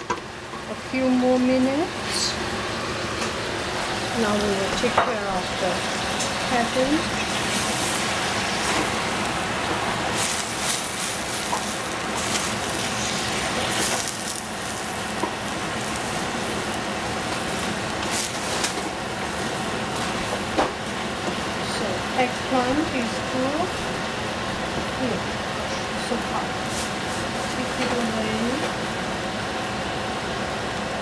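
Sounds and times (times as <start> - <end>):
cabbage hissing in a pan: 2.0 - 23.7, 26.2 - 28.6.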